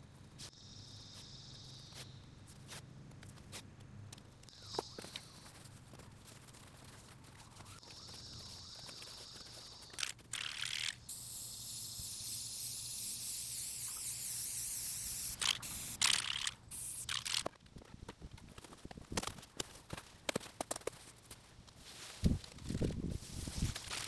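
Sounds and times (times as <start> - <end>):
spray paint can hissing: 7.8 - 17.5.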